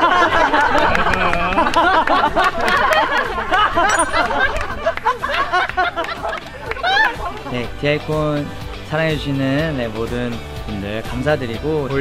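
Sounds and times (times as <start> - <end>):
men laughing: 0.0 - 7.5.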